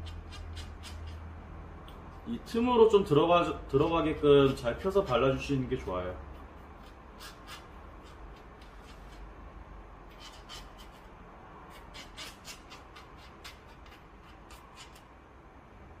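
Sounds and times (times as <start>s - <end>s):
chopstick scraping and clicking: 0.0s - 2.3s, 3.7s - 5.5s, 6.3s - 9.3s, 10.1s - 11.1s, 11.7s - 15.1s.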